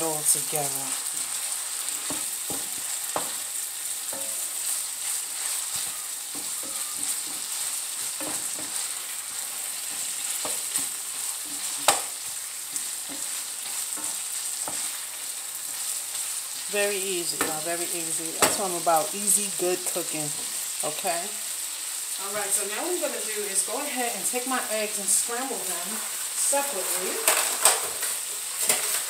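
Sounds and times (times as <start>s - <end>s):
food sizzling in a frying pan: 0.0s - 29.0s
wooden spoon scraping a pan: 0.1s - 16.7s, 25.1s - 29.0s
spoon knocking against pan: 2.0s - 3.4s, 5.7s - 8.8s.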